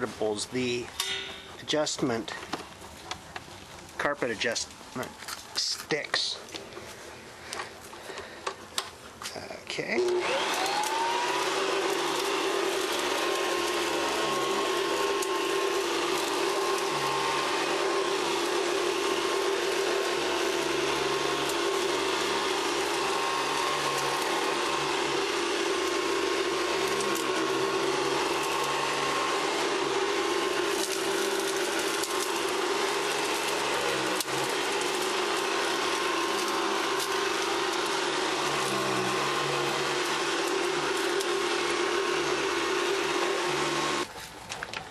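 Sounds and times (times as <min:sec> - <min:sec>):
vacuum cleaner motor whining: 0:09.2 - 0:44.1
vacuum cleaner humming on rug: 0:09.3 - 0:44.1.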